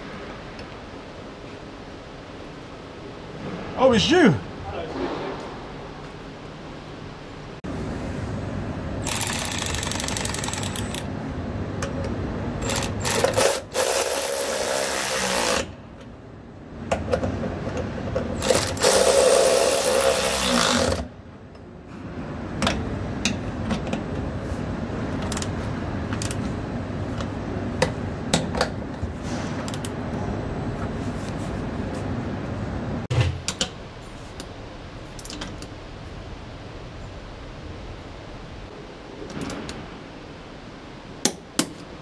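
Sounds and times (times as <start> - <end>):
cordless power ratchet running: 9.0 - 11.0, 12.6 - 15.7, 18.4 - 21.0.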